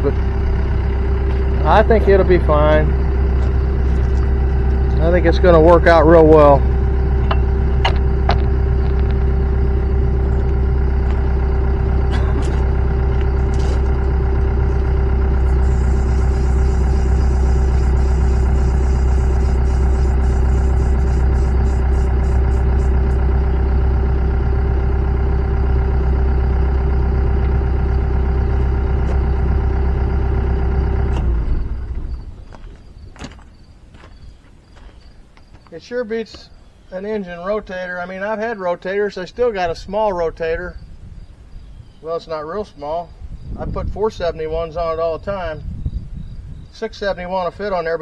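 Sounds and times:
mechanical hum of motor drive: 0.0 - 35.6.

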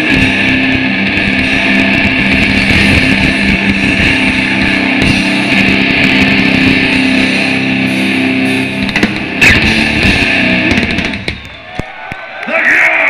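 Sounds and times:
distorted electric guitar chord: 0.0 - 11.5
loud drum hit: 0.0 - 12.0
death metal band playing: 0.0 - 13.0.

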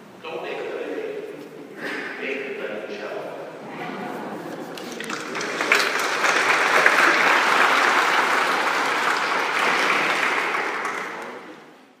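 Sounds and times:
congregation clapping: 4.4 - 11.8.

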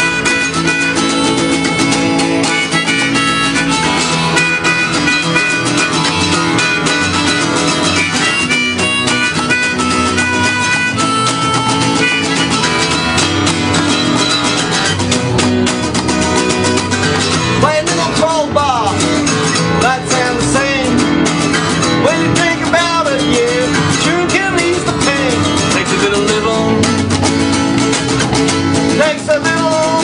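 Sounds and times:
acoustic guitar playing: 0.0 - 30.0
harmonica bending notes: 0.0 - 30.0.

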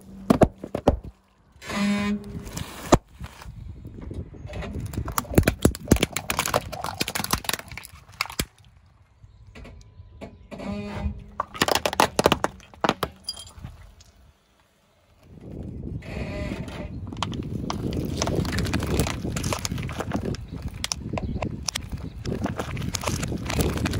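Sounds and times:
plastic dishes cracking under tyre: 0.0 - 1.3, 4.5 - 8.9, 11.3 - 13.3, 17.1 - 23.9.

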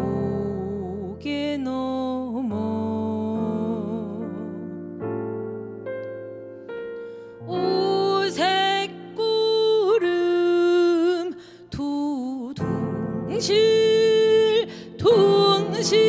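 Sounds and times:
stage piano chords: 0.0 - 11.2, 12.6 - 16.0
woman singing long-held notes: 7.4 - 16.0.

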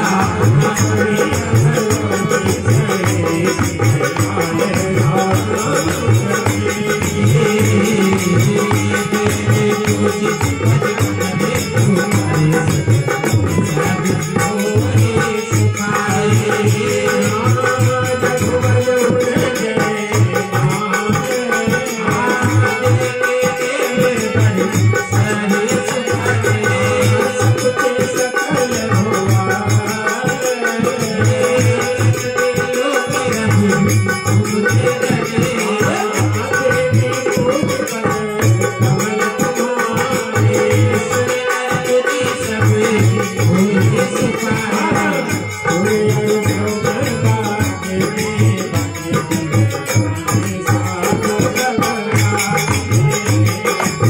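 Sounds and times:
harmonium playing chords: 0.0 - 54.0
rattling hand percussion: 0.0 - 54.0.

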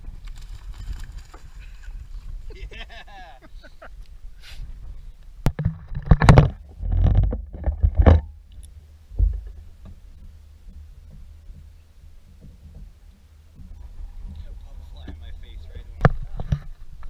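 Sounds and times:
knocks and thumps on boat: 5.5 - 8.3, 9.1 - 17.0.

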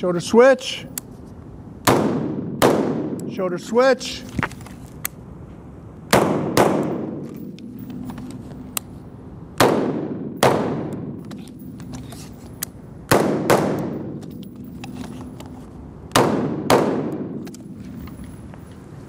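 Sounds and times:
rifle gunshots echoing indoors: 1.8 - 3.4, 6.1 - 7.8, 9.6 - 11.2, 13.1 - 14.2, 16.1 - 17.5.

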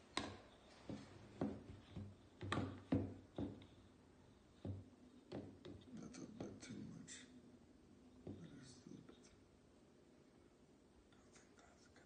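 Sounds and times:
measuring cup knocking on plastic: 0.2 - 3.7, 4.6 - 6.6.

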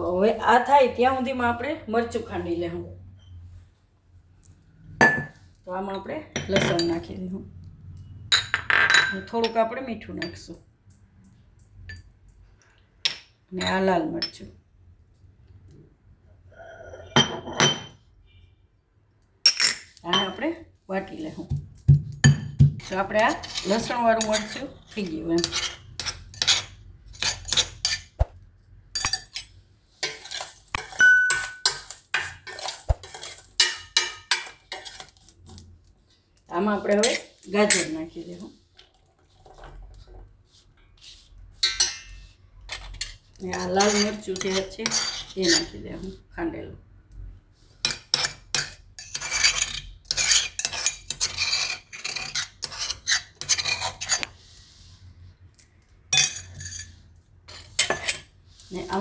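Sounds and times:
steel spoon scraping metal bowl: 22.8 - 28.2, 29.0 - 35.6, 40.8 - 46.2, 47.8 - 55.1, 56.2 - 59.0.

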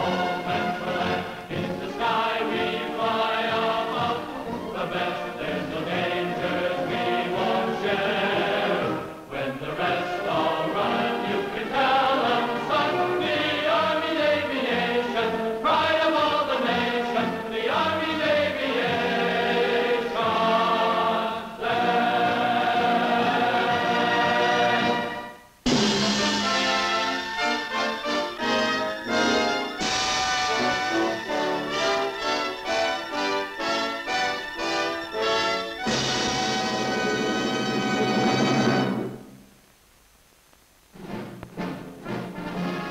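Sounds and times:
orchestra playing: 0.0 - 9.2, 23.8 - 39.3, 41.0 - 42.9
choir singing sustained chords: 0.0 - 39.4.

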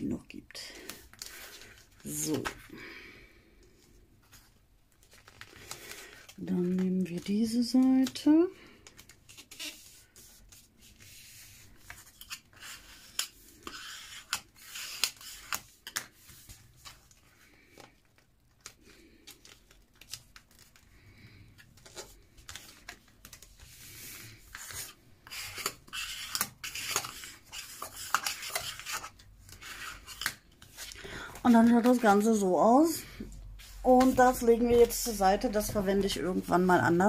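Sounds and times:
paper and foil rustling: 4.9 - 10.9.

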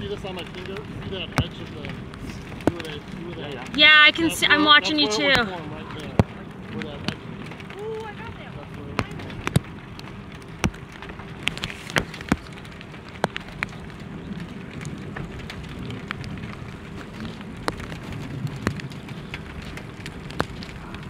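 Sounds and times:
low steady background noise: 0.0 - 21.0
raindrops tapping: 0.0 - 21.0.

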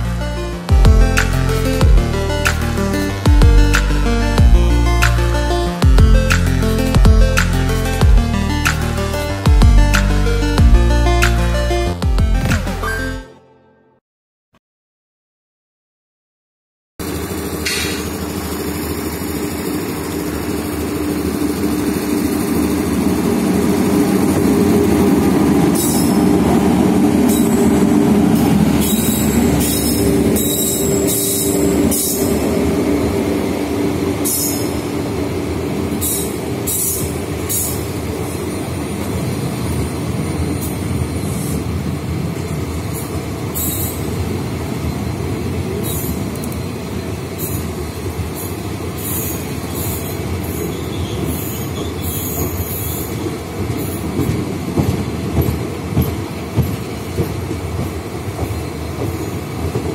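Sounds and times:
train passing with rumble and hum: 17.0 - 59.9.

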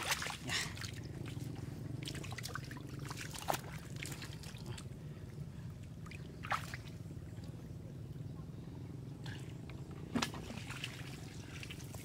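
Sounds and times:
sharp water splashes: 0.0 - 1.0
water trickling and splashing: 0.0 - 7.6, 9.2 - 12.0.

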